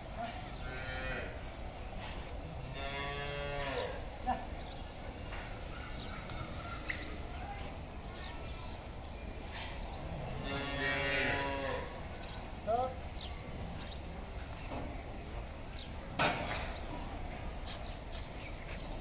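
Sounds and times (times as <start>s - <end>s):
cattle mooing: 0.7s - 1.4s, 2.6s - 4.0s, 10.2s - 11.9s.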